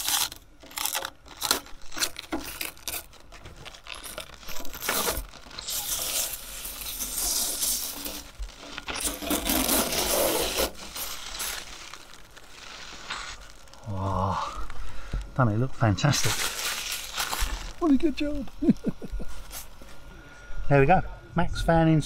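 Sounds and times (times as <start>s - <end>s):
plastic film crinkling and tearing: 0.0s - 19.8s
plastic film rustling and peeling: 0.0s - 20.1s.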